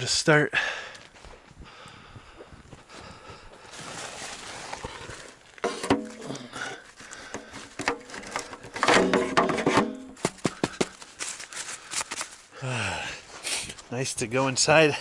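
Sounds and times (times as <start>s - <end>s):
clothing rustling on microphone: 3.6s - 5.7s
sharp clicks and knocks: 7.3s - 11.0s.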